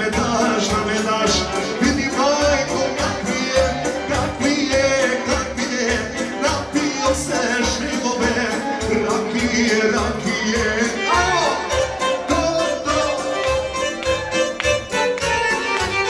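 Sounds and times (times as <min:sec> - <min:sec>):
man singing into a microphone: 0:00.0 - 0:13.6
folk-pop band with steady beat: 0:00.0 - 0:16.0.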